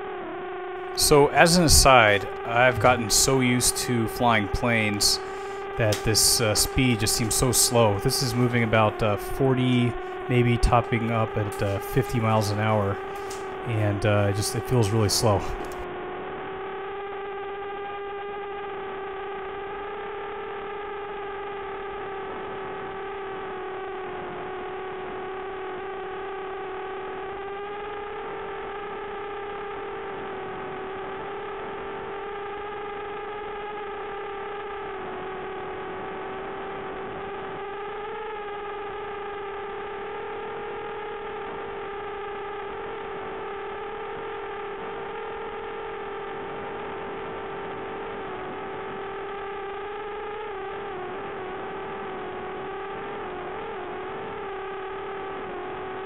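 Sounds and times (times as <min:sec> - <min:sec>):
drone motors humming: 0:00.8 - 0:15.9.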